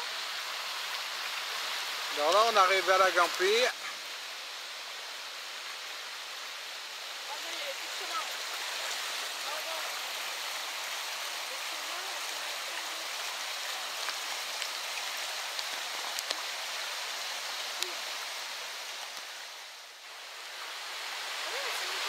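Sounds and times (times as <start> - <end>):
river rushing over stones: 0.0 - 22.0
faint clicks: 15.5 - 16.4.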